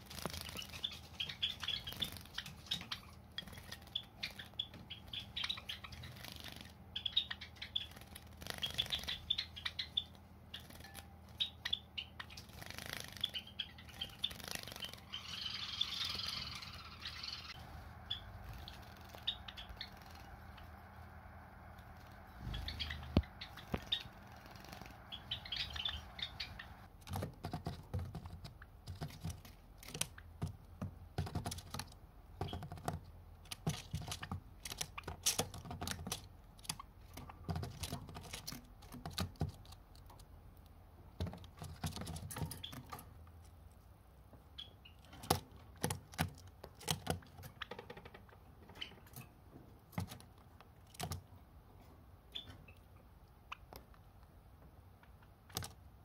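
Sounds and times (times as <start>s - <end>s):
birds clicking and tapping on cage: 0.0s - 15.2s, 22.0s - 40.4s, 41.1s - 43.5s, 44.6s - 51.4s, 55.1s - 55.9s.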